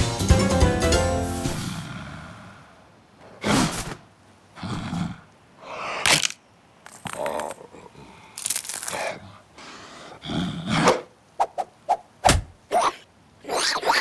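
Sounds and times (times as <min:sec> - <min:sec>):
background music: 0:00.0 - 0:01.8
cartoon crocodile vocal sounds: 0:12.7 - 0:14.0.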